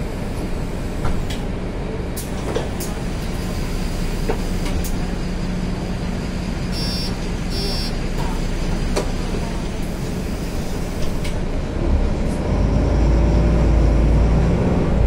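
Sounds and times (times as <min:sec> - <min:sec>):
bus engine idling: 0:00.0 - 0:12.8
high electronic beep: 0:06.8 - 0:07.9.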